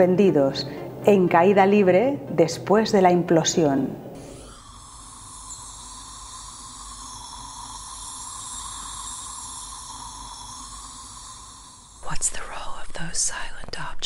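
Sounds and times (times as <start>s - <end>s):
steady airy hiss: 4.1s - 13.4s.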